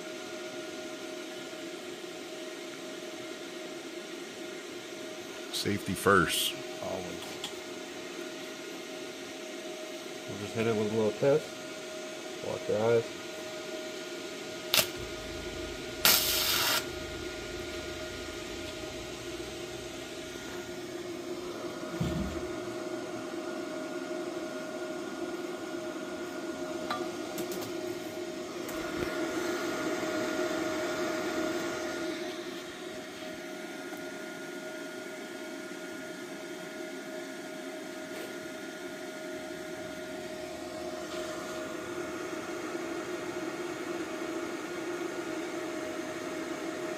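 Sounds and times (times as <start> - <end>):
welder humming: 9.9 - 23.4, 25.3 - 34.7
welding arc striking: 14.7 - 20.2.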